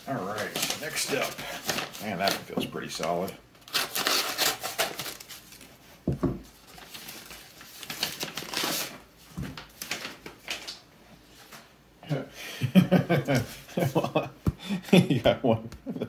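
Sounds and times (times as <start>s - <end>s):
paper crinkling and rustling: 0.2s - 5.8s, 6.5s - 11.7s.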